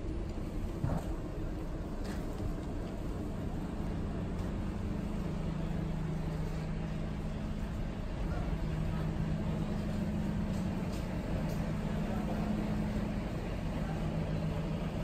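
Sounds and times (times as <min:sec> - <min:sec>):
coach engine hum: 0:00.0 - 0:15.0.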